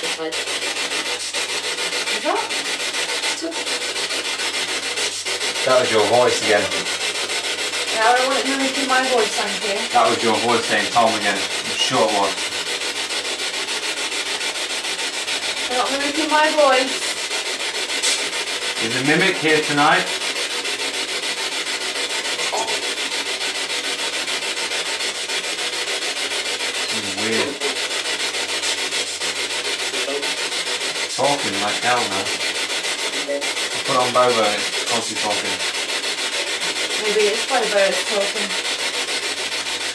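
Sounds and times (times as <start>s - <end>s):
radio static hiss: 0.0s - 39.9s.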